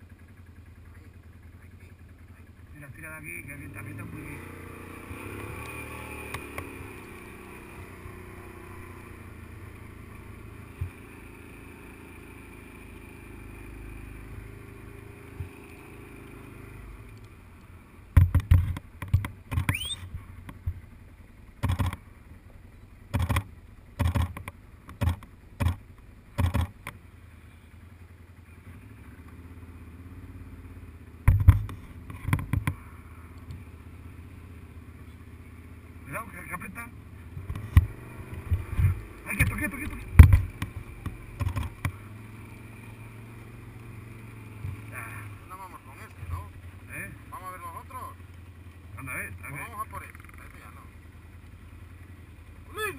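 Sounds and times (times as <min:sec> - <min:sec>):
quad engine running: 0:00.0 - 0:52.9
loud sharp thumps: 0:18.1 - 0:19.8, 0:31.2 - 0:32.8, 0:38.5 - 0:42.0.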